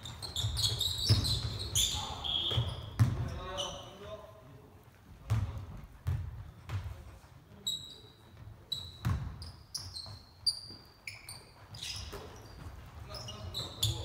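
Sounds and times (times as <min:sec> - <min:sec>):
shoes squeaking on court: 0:00.0 - 0:04.0, 0:07.6 - 0:14.0
basketball bouncing on hardwood: 0:02.5 - 0:03.2, 0:05.3 - 0:06.9, 0:09.0 - 0:09.4.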